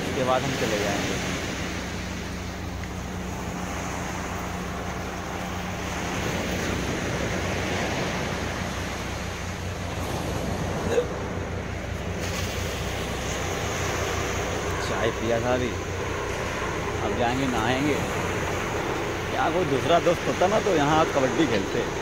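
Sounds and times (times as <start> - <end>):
surf washing onto beach: 0.0 - 22.0.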